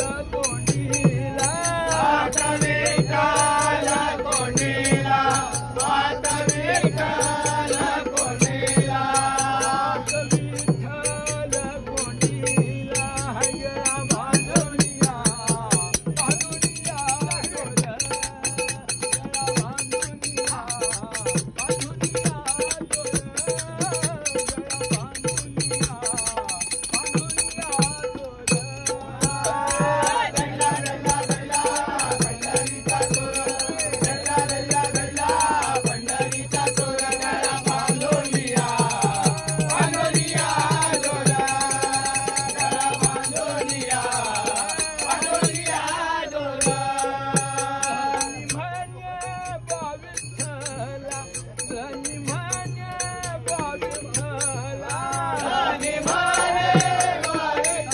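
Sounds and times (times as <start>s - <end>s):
hand cymbals clashing: 0.0s - 57.9s
men singing together: 0.0s - 57.9s.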